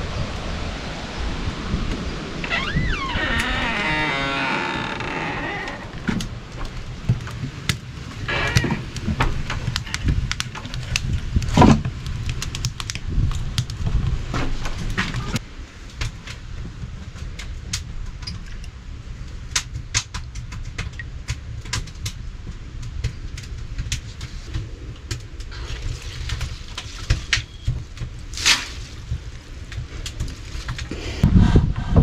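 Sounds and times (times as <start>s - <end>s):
low rumble: 0.0s - 7.3s
firewood knocking and clattering: 2.6s - 15.4s.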